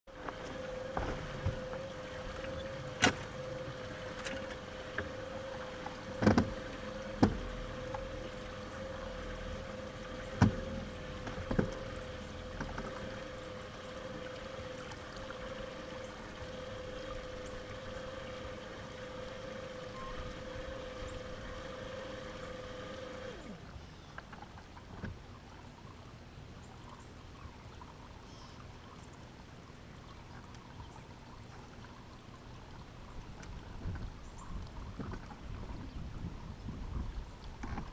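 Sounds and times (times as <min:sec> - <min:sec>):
electric trolling motor whine: 0:00.1 - 0:24.4
sharp knocks on boat: 0:00.2 - 0:03.3, 0:06.1 - 0:07.5, 0:10.3 - 0:11.9.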